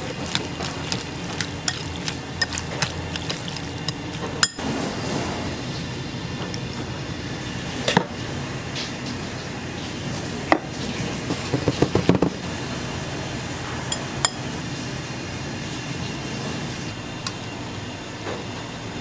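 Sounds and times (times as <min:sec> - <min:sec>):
kitchen hum: 0:00.0 - 0:19.0
utensils clinking on ceramic bowl: 0:00.3 - 0:04.6, 0:13.9 - 0:14.4.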